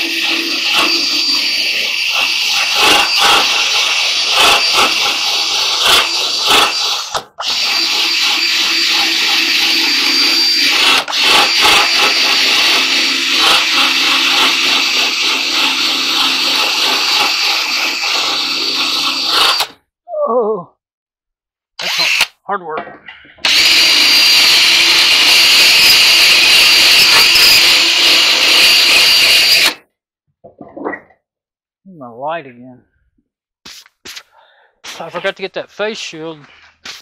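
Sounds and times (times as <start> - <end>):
drill wire wheel scrubbing metal: 0.0 - 19.8, 21.8 - 22.3, 23.4 - 29.8.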